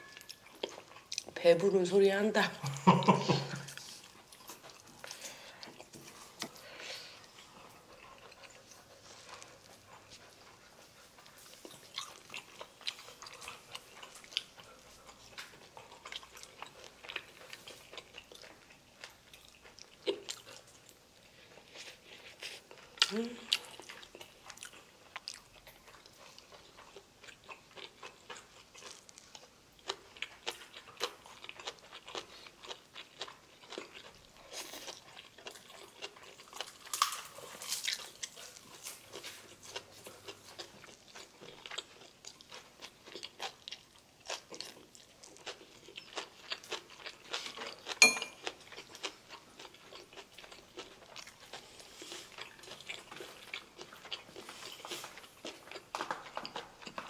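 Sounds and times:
chewing and crunching food: 0.0s - 57.0s
sharp ringing clink: 48.0s - 48.4s
chopsticks clicking on dishes: 48.0s - 48.5s.

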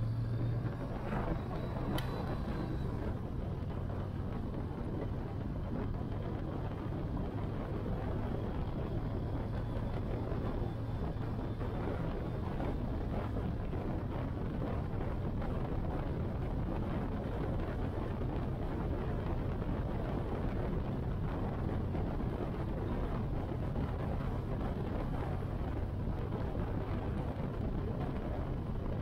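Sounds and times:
motorcycle engine at speed: 0.0s - 29.0s
wind and road noise: 0.0s - 29.0s.

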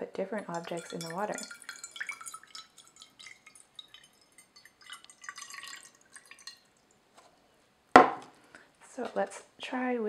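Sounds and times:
water pouring into glass dish: 0.3s - 7.0s.

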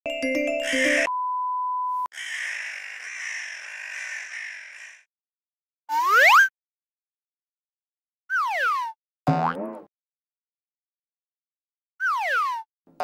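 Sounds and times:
musical jingle: 0.1s - 1.1s.

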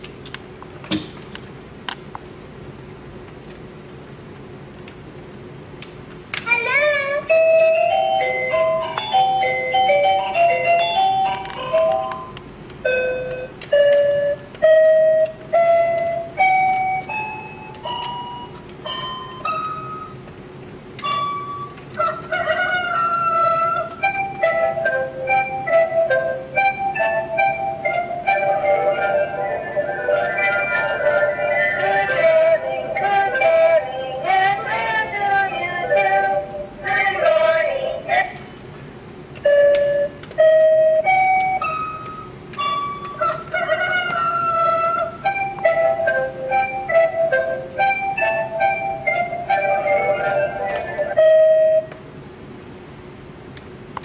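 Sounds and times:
toy robot singing through speaker: 6.5s - 9.5s, 22.0s - 25.0s, 28.3s - 38.4s, 43.1s - 47.2s, 49.5s - 51.4s
electronic keypad notes: 22.6s - 34.3s, 39.4s - 51.9s.

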